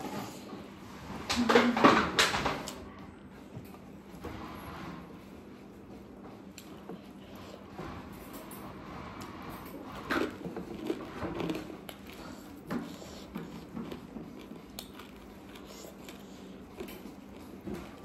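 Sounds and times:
person chewing food: 9.9 - 18.0.

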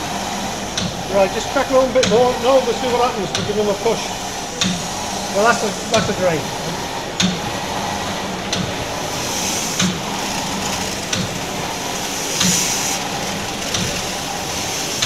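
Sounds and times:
steam hissing: 0.0 - 15.0
steam engine turning over: 8.8 - 15.0.

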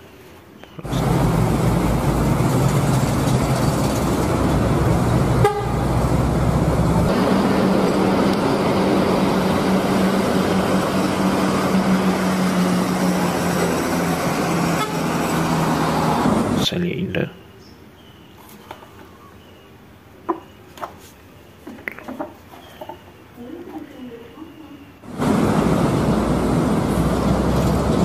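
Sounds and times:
heavy traffic engines droning: 0.8 - 17.4, 25.0 - 28.0
vehicle horn: 5.4 - 5.9, 14.7 - 15.3.

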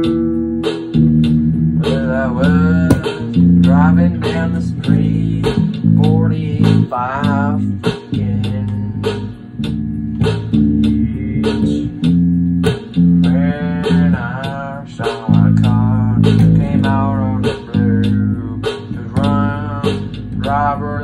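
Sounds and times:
bass line: 0.0 - 21.0
sharp drum hits: 0.6 - 4.4, 9.1 - 14.2.

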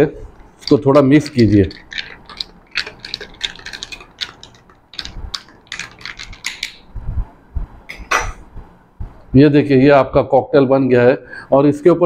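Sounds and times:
spoon clinking ice in a glass: 1.2 - 6.8
soft low thumps: 6.9 - 7.8.

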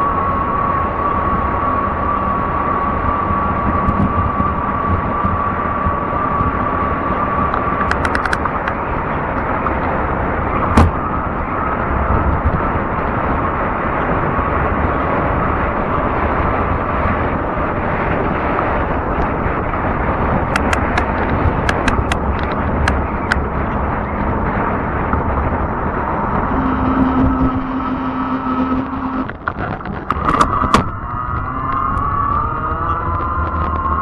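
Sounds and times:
electric bike whine: 0.0 - 34.0
wind and rolling noise: 0.0 - 34.0
sharp clicks: 7.5 - 8.8, 20.5 - 23.4.

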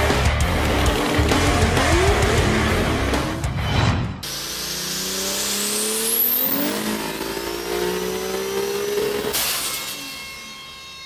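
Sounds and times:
car engine revving: 0.0 - 3.6, 4.2 - 9.4
high turbo whine: 0.2 - 10.8.

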